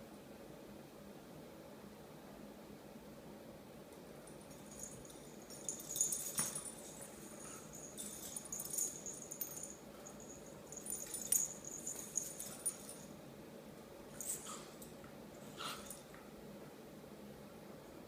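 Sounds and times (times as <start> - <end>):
collar jingling: 4.3 - 13.2, 14.2 - 16.2.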